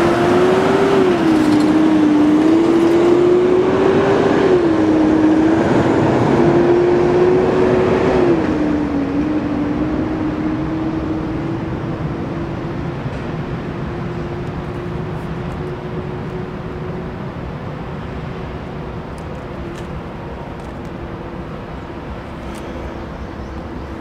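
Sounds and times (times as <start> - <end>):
freight train rumbling by: 0.0 - 24.0.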